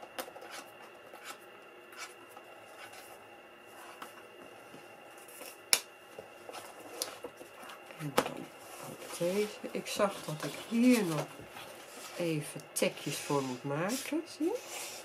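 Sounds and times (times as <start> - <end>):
paper rustling and sliding: 8.6 - 12.3.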